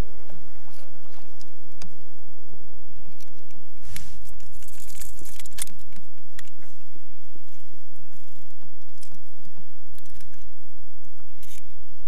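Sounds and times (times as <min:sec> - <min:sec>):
crinkling rattle: 0:03.2 - 0:06.8, 0:07.5 - 0:10.5.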